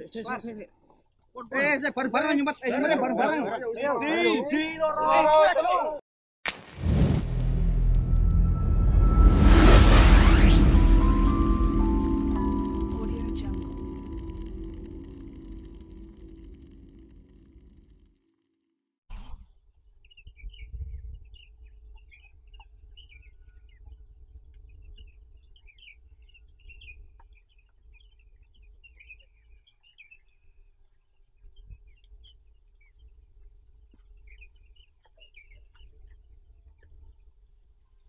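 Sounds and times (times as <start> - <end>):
low rumble: 6.8 - 18.1.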